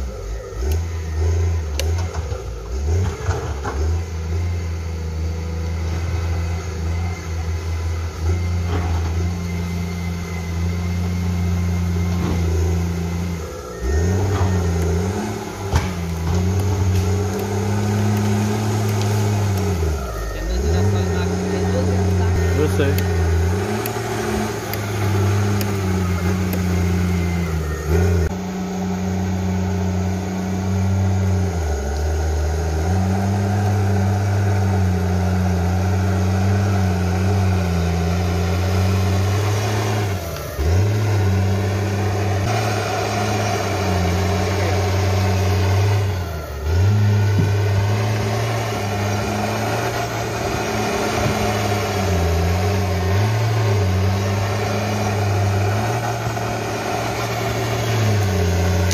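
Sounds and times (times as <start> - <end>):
bulldozer blade pushing soil: 0.0 - 58.9
bulldozer diesel engine running: 0.0 - 58.9.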